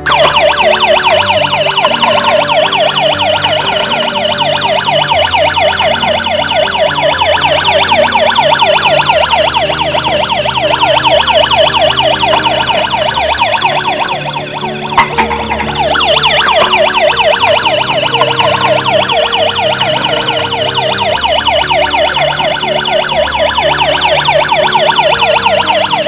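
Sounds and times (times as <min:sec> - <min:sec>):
low electronic notes: 0:00.0 - 0:26.0
toy police siren warbling: 0:00.0 - 0:26.0.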